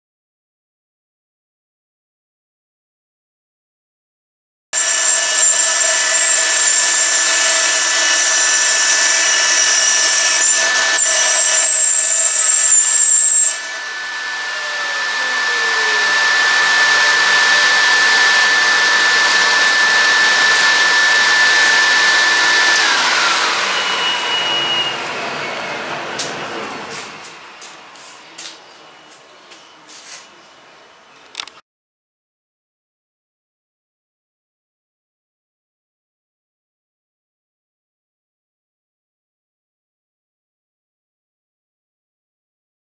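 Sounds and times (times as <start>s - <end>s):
dust extractor rushing: 4.8s - 28.3s
router spindle whining: 4.8s - 30.5s.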